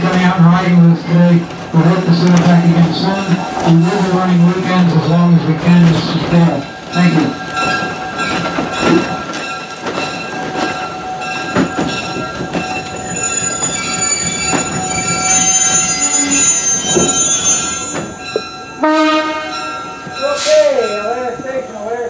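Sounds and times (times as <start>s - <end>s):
metallic train wheel squeal: 10.1s - 18.8s
higher thinner squeal: 13.0s - 18.2s
locomotive horn blast: 18.8s - 19.7s.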